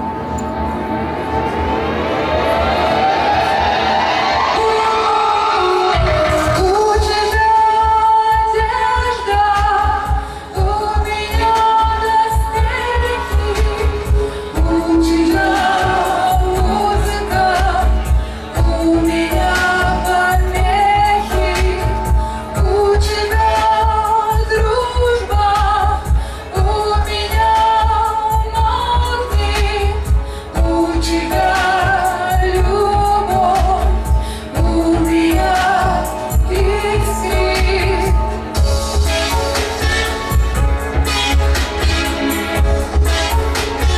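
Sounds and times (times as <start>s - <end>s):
backing music with deep bass: 0.0s - 43.9s
woman singing through pa: 4.6s - 38.4s.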